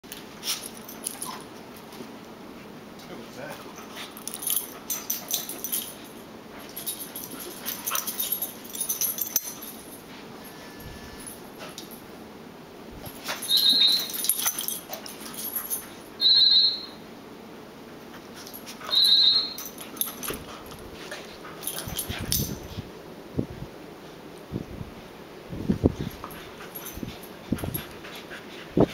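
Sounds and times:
small dogs squealing: 0:18.9 - 0:19.6.

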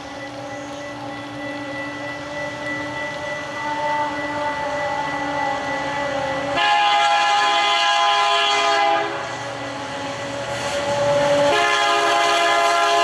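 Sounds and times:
diesel locomotives droning: 0:00.0 - 0:13.0
locomotive horn chord: 0:02.2 - 0:09.3, 0:11.1 - 0:13.0.

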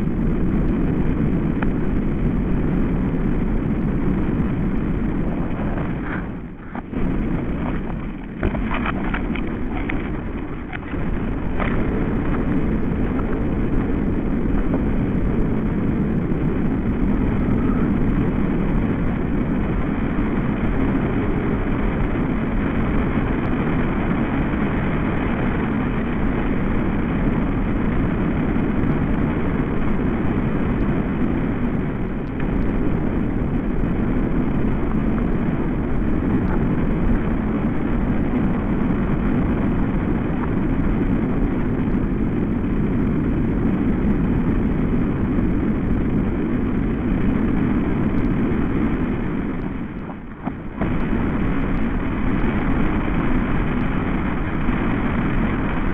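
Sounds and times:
processed wind drone: 0:00.0 - 0:55.9.

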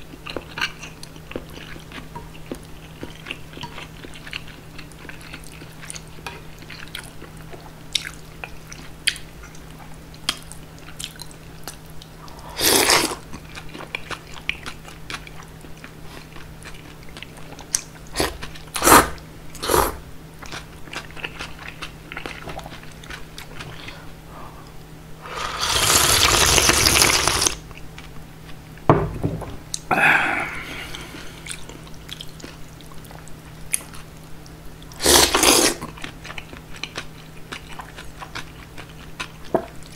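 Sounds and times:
soft chewing: 0:00.0 - 0:18.8, 0:20.4 - 0:24.9, 0:30.5 - 0:39.9
slurping noodles: 0:12.6 - 0:13.2, 0:18.2 - 0:20.0, 0:25.2 - 0:27.6, 0:35.0 - 0:35.8.

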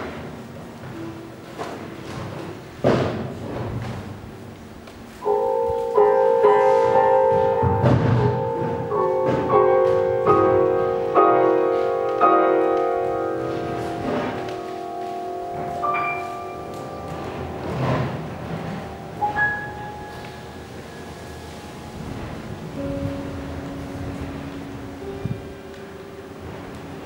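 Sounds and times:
grand piano chords: 0:00.0 - 0:27.0
high piano notes: 0:05.0 - 0:27.0.

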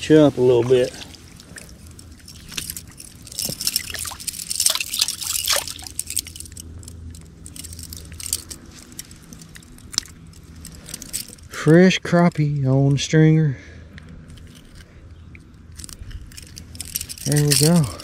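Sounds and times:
water splashing and dripping: 0:00.0 - 0:06.3
metal chain clinking: 0:00.7 - 0:12.5, 0:14.2 - 0:18.0.

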